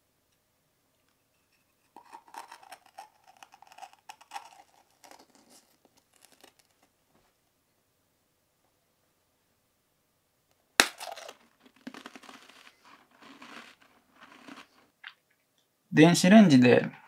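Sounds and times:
cracker crunching: 0:01.9 - 0:06.9, 0:10.8 - 0:15.2.

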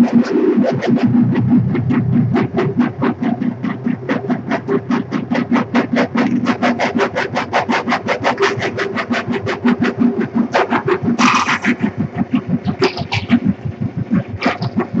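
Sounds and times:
fast electronic pulse: 0:08.3 - 0:15.0.

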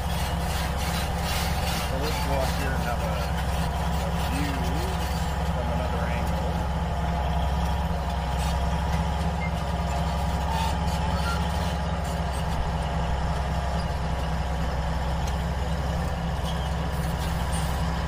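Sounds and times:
engine running steadily: 0:00.0 - 0:18.0.

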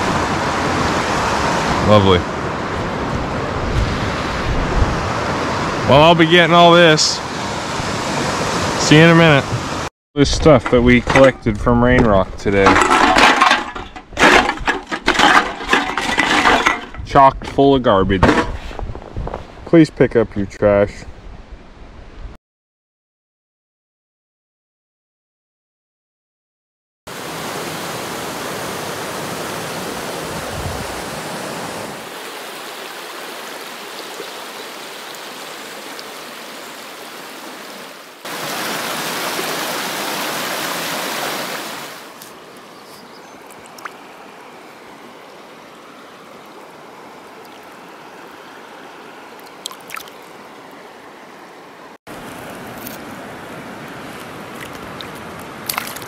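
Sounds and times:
river water running over rocks: 0:27.1 - 0:56.0.

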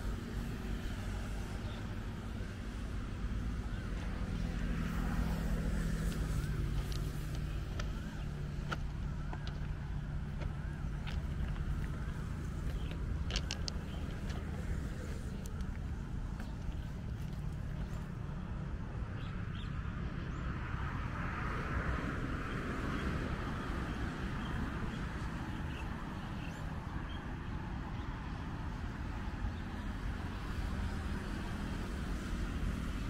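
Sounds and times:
vehicle passing: 0:00.0 - 0:26.2
road traffic rumble: 0:00.0 - 0:33.0.

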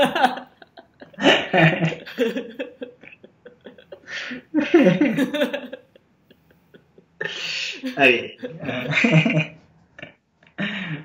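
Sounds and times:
person talking: 0:07.4 - 0:09.2.

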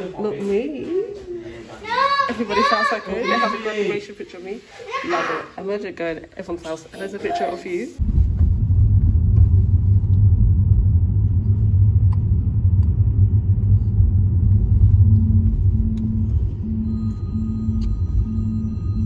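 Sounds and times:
loud low rumble: 0:08.0 - 0:19.0
pulsing short tone: 0:14.9 - 0:19.0.

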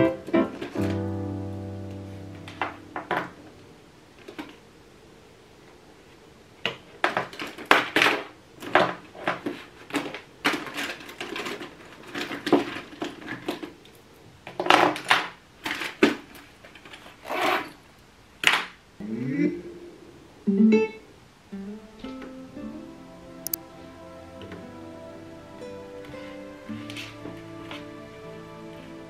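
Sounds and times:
pens rattling in pencil case: 0:09.2 - 0:13.8.

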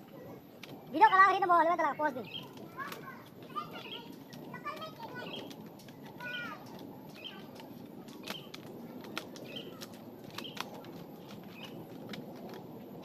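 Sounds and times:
bird chirping: 0:00.2 - 0:11.9
sharp clicks: 0:03.8 - 0:12.6.

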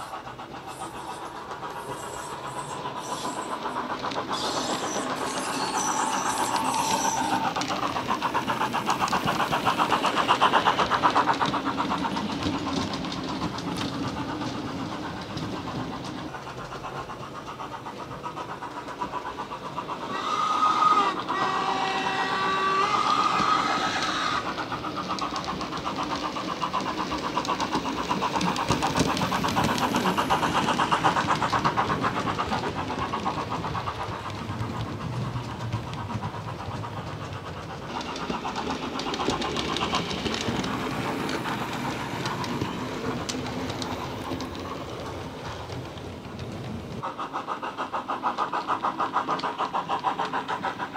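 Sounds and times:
steam locomotive chuffing: 0:00.0 - 0:50.9
train whistle: 0:04.3 - 0:07.6, 0:20.1 - 0:24.4.

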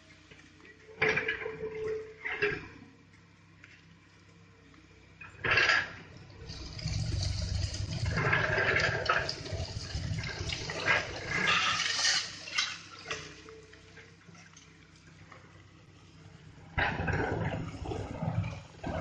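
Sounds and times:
low rumble: 0:06.3 - 0:11.9
rock and grit pouring down: 0:06.4 - 0:13.4.

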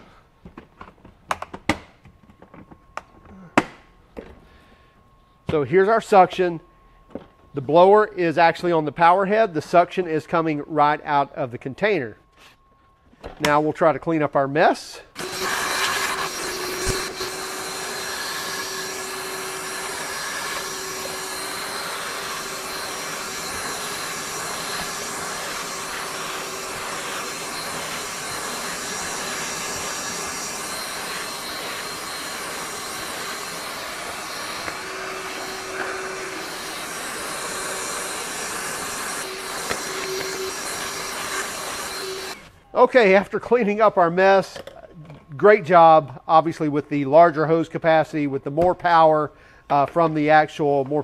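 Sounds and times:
wet dry vacuum running: 0:15.1 - 0:42.5.

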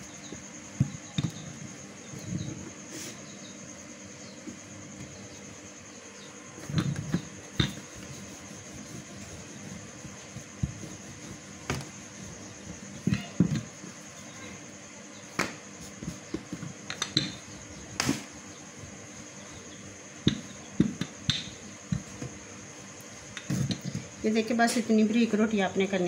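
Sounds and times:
steady background hum: 0:00.0 - 0:26.0
rolling pin knocking on countertop: 0:20.2 - 0:22.2.

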